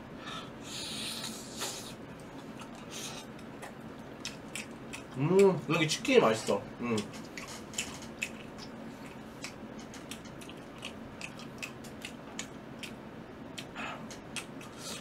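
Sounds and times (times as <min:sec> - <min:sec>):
faint steady hum: 0:00.0 - 0:15.0
person chewing fried chicken: 0:00.8 - 0:05.5, 0:06.9 - 0:15.0.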